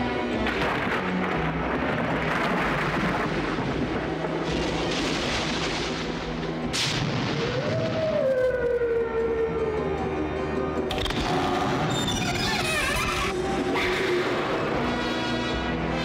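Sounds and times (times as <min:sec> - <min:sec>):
dark orchestral music: 0:00.0 - 0:16.0
sharp crack: 0:00.4 - 0:08.2.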